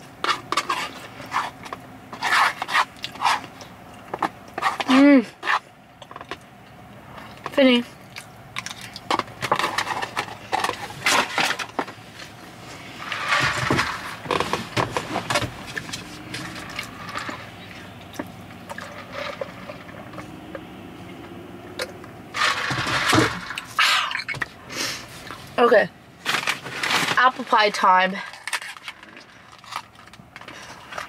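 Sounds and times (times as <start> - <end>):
food containers rustling: 0.0 - 7.6, 8.5 - 25.6, 26.2 - 31.0
chewing food: 6.0 - 9.9.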